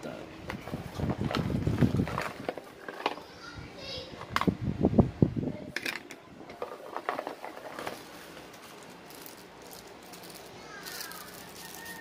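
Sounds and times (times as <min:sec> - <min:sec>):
plastic bags crinkling: 0:06.6 - 0:12.0.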